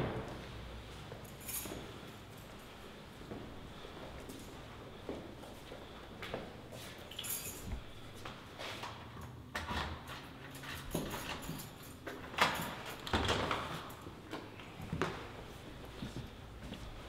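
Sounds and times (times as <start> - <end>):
key and lock clicks and rattles: 9.7 - 14.1.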